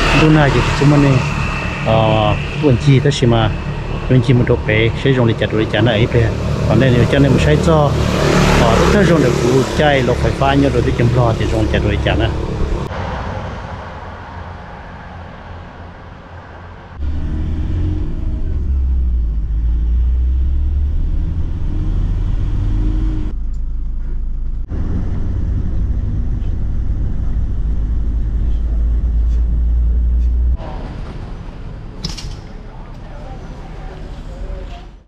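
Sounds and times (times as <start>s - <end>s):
moving vehicle rumble: 0.0s - 35.0s.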